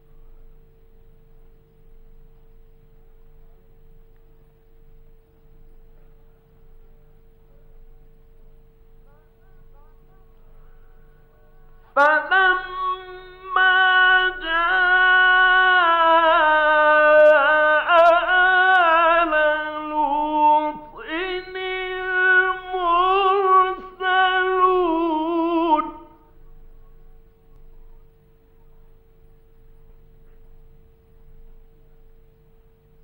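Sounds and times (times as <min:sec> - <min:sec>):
recording hum: 0:00.0 - 0:33.0
man chanting melodically: 0:09.1 - 0:26.3.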